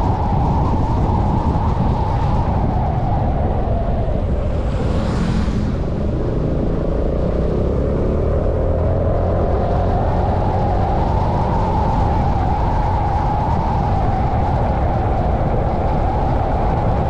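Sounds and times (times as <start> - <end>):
scooter engine whine: 0.0 - 17.0
wind and road rumble: 0.0 - 17.0
motorcycle passing: 4.3 - 10.4.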